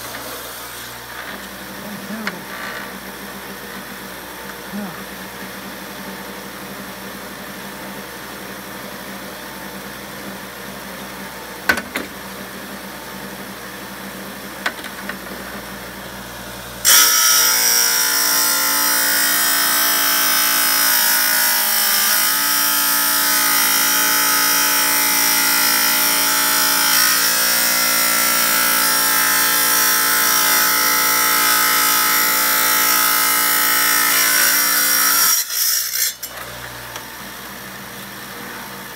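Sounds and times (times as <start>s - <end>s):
tile saw motor hum: 0.0s - 38.9s
saw blade grinding stone: 16.8s - 36.4s.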